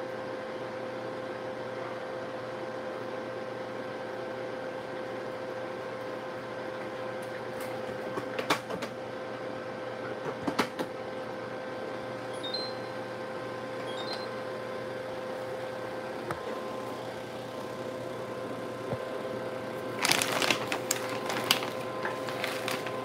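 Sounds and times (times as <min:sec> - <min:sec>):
household appliance humming: 0:00.0 - 0:23.0.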